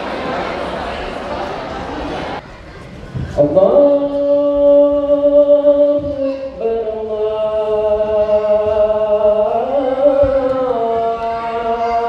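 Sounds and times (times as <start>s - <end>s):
person chanting melodic notes: 3.4s - 12.0s.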